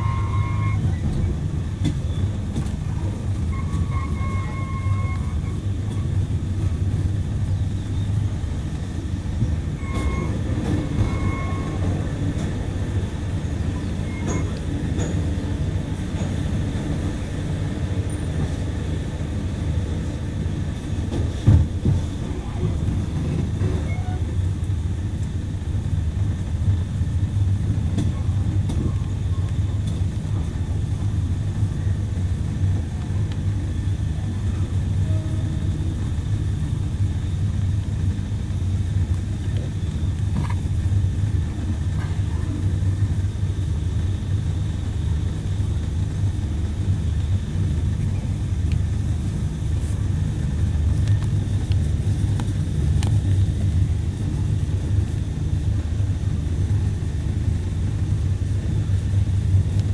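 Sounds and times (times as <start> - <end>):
train rumbling on track: 0.0 - 59.9.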